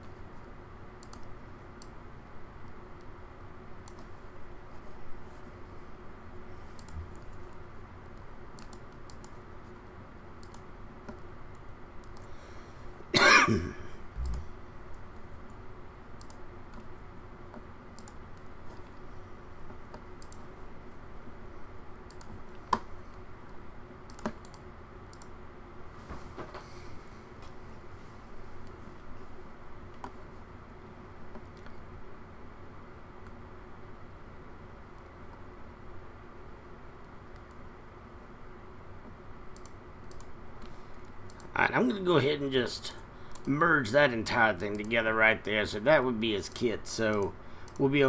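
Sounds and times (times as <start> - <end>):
faint hum: 0.0 - 48.0
mouse and keyboard clicks: 8.6 - 9.4, 10.4 - 11.2
person coughing: 13.2 - 14.0.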